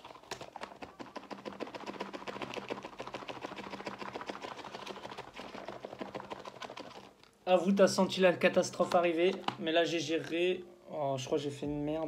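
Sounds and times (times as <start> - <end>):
food rattling in shaken box: 0.0 - 7.2.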